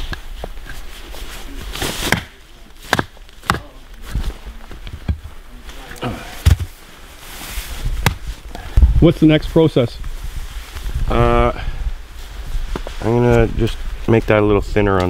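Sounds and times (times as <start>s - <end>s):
hatchet chopping log: 2.1s - 3.7s.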